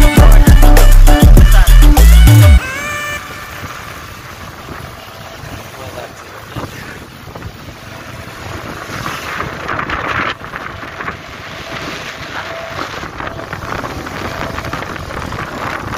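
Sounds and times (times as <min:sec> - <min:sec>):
motorcycle engine: 0:00.0 - 0:15.9
road noise: 0:00.0 - 0:15.9
wind buffeting microphone: 0:03.2 - 0:15.9.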